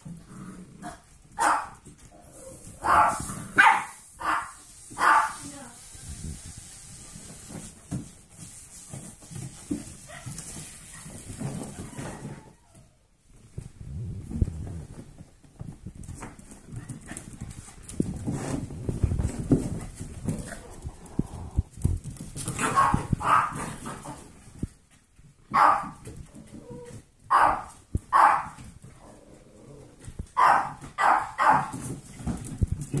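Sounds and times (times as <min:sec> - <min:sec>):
dogs barking sharply: 0:01.4 - 0:01.8, 0:02.8 - 0:05.4, 0:22.6 - 0:23.7, 0:25.5 - 0:26.0, 0:27.3 - 0:28.6, 0:30.4 - 0:31.8
paws clattering on hard floor: 0:07.6 - 0:13.0, 0:14.4 - 0:29.2, 0:29.9 - 0:33.0.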